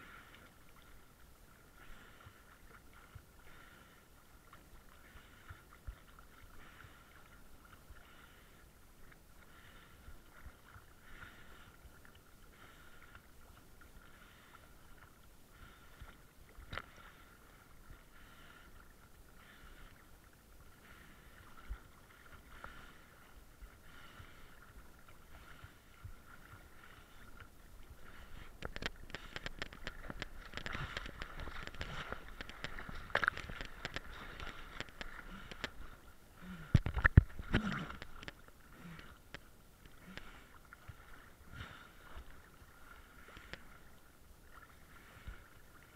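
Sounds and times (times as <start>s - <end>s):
boat motor humming: 16.9s - 42.3s
water splashing against camera: 24.0s - 45.8s.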